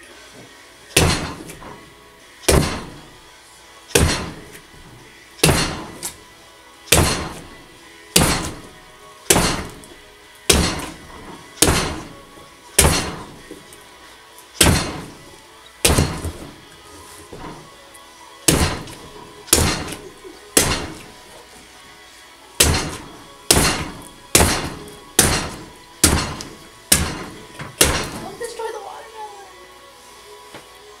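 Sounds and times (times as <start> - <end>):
fist punching watermelon: 1.0 - 1.8, 2.4 - 3.0, 3.9 - 4.6, 5.4 - 6.2, 6.9 - 7.5, 8.2 - 9.9, 10.5 - 12.2, 12.8 - 13.4, 14.6 - 15.2, 15.8 - 16.6, 18.5 - 20.0, 20.6 - 21.1, 22.6 - 28.2.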